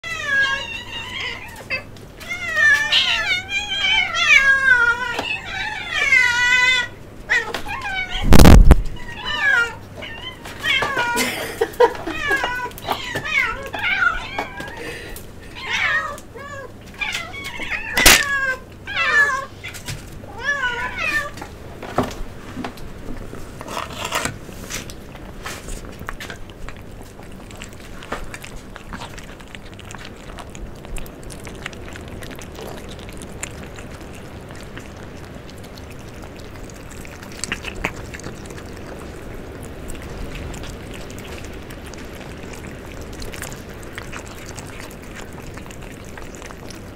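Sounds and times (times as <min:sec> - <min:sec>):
kittens meowing: 0:00.0 - 0:11.2, 0:15.5 - 0:21.4
cats chewing food: 0:00.0 - 0:46.9.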